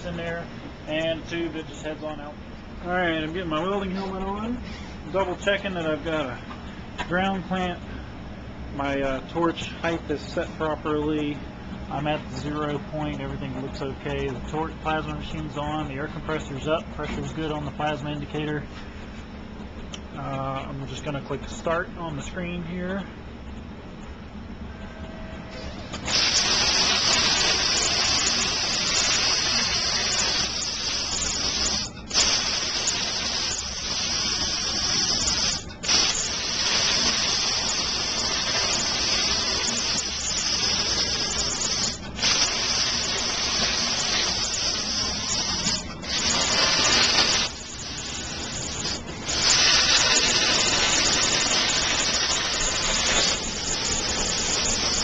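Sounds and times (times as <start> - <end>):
plasma torch hissing: 26.0 - 55.0.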